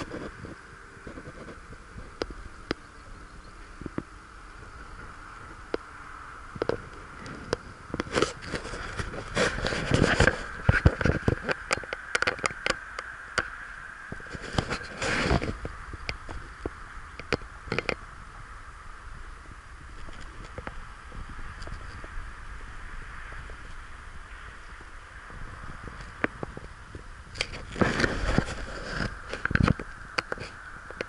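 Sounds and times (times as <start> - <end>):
bicycle riding on concrete: 0.0 - 31.0.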